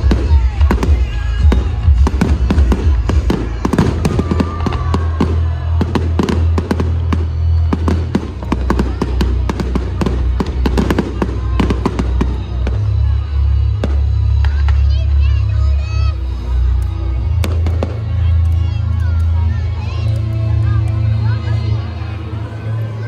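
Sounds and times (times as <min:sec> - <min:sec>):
loud music with heavy bass: 0:00.0 - 0:18.1
fireworks bangs and crackles: 0:00.0 - 0:23.0.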